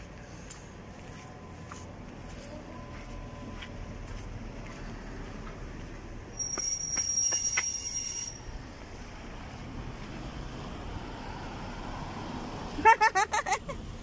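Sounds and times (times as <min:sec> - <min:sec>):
street traffic noise: 0:00.0 - 0:14.0
brakes squealing: 0:00.4 - 0:09.5.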